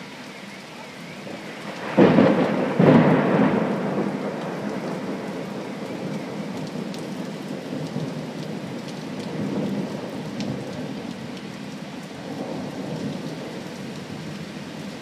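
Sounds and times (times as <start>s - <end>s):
heavy rain falling: 0.0s - 15.0s
thunder rumbling: 1.2s - 11.1s.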